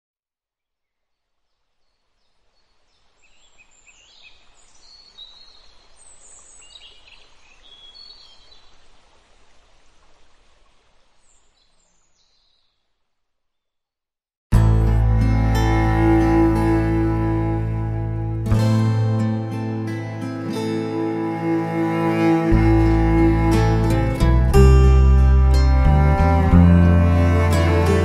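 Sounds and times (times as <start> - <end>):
outdoor background hiss: 0.4 - 13.7, 14.6 - 28.0
birds chirping: 0.9 - 9.2, 11.1 - 13.8.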